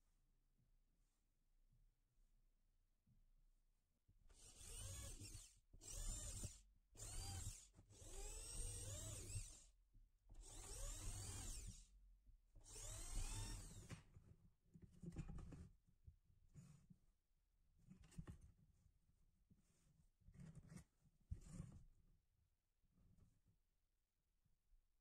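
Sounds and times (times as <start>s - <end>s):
electric drill boring into wood: 4.4s - 9.6s, 10.4s - 11.9s, 12.6s - 13.9s.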